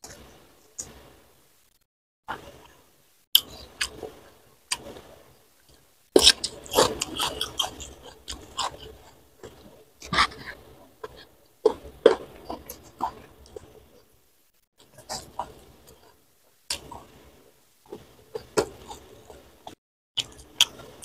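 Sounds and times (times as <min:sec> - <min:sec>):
person chewing food: 0:03.4 - 0:14.2, 0:14.8 - 0:21.0.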